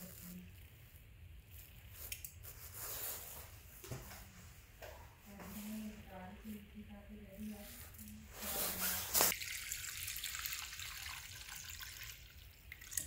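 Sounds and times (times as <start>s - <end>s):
water pouring from jug: 9.3s - 13.0s
water splashing into saucepan: 9.3s - 13.0s.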